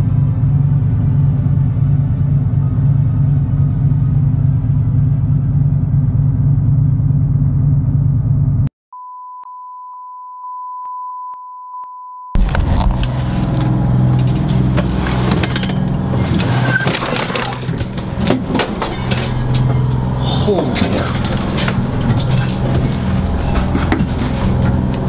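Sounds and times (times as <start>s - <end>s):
low engine drone: 0.0s - 8.7s, 12.4s - 25.0s
single-pitch warning beep: 9.0s - 12.4s
knocks and rattles on boat: 12.4s - 25.0s.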